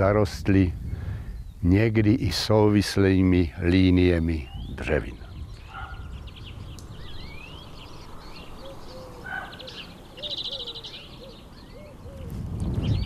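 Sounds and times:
birds chirping and twittering: 0:00.0 - 0:13.0
low hooting bird notes: 0:04.4 - 0:13.0.

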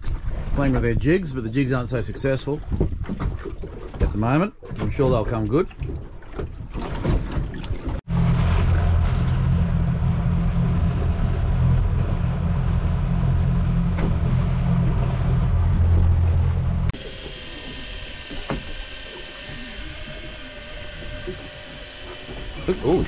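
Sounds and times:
outboard motor rumbling: 0:00.0 - 0:23.0
thin steady whine: 0:08.3 - 0:23.0.

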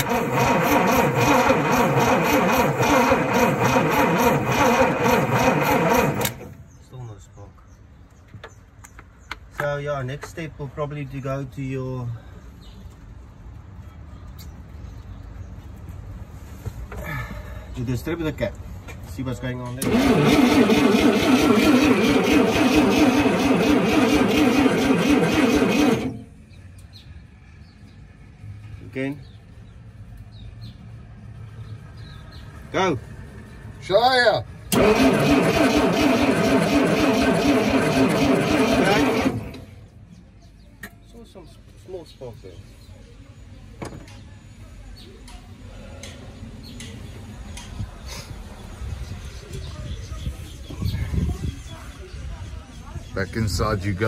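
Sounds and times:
starter motor cranking engine: 0:00.0 - 0:06.6, 0:19.8 - 0:26.4, 0:34.6 - 0:40.0.

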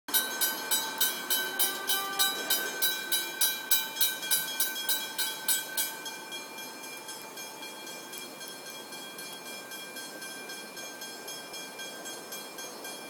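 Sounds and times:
crossing warning bell ringing: 0:00.1 - 0:13.0.

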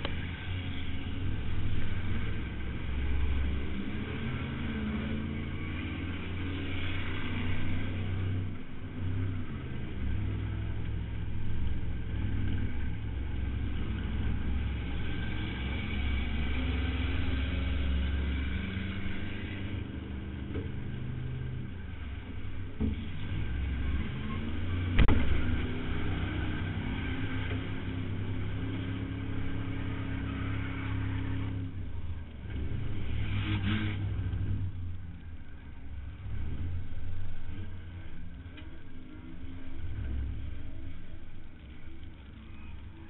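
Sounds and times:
car engine under load: 0:00.0 - 0:43.0.

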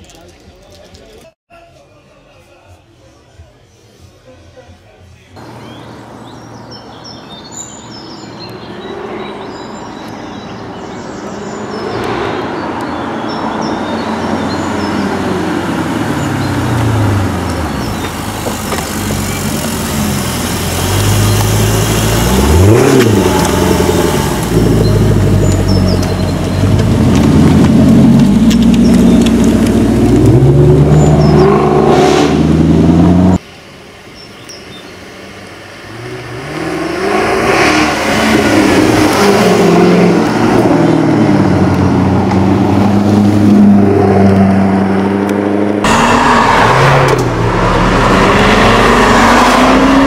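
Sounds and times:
birds chirping: 0:05.4 - 0:27.6, 0:28.2 - 0:31.9, 0:34.1 - 0:35.1
car engine accelerating and revving: 0:08.4 - 0:33.4, 0:35.2 - 0:50.0.

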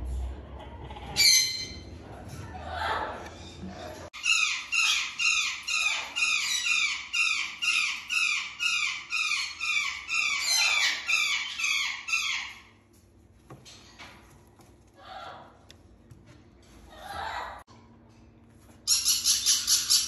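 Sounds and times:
parrot harsh calls: 0:04.2 - 0:12.7.

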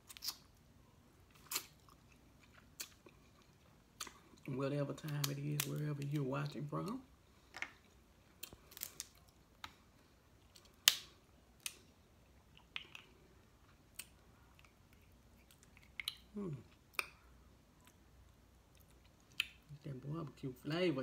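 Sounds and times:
crab shells cracking: 0:05.0 - 0:06.2, 0:07.5 - 0:09.8, 0:10.5 - 0:11.8.

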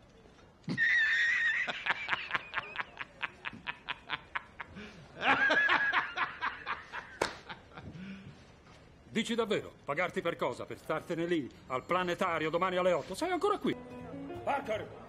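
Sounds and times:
man laughing hard: 0:00.7 - 0:08.0
breathy gasps: 0:07.9 - 0:08.5.

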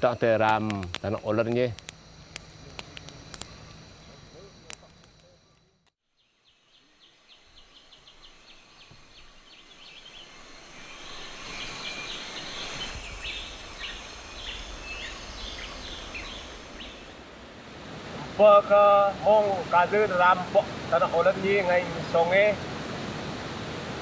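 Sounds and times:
steady high hum: 0:06.9 - 0:24.0
chirping calls: 0:07.0 - 0:17.1.

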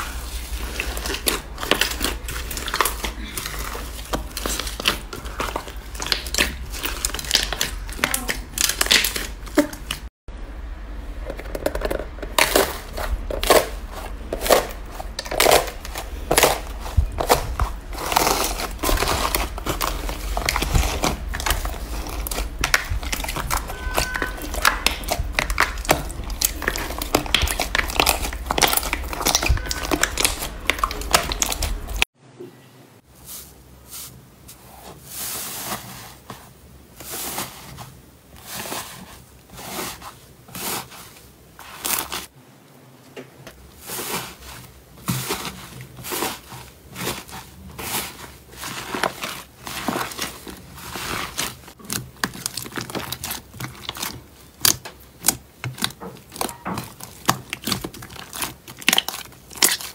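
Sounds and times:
hands squishing slime: 0:00.0 - 0:10.1, 0:11.3 - 0:32.1, 0:43.8 - 0:59.9.

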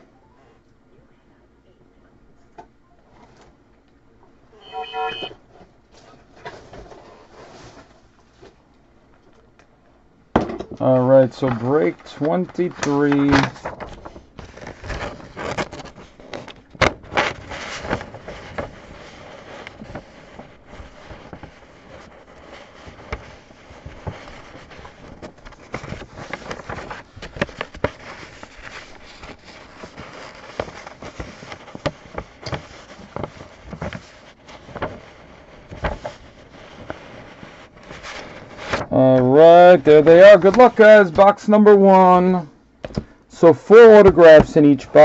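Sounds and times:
plastic wrap and cardboard crackling: 0:10.9 - 0:42.3.

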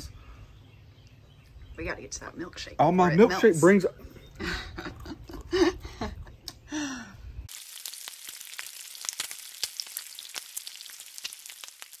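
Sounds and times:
food sizzling on a griddle: 0:07.5 - 0:12.0.

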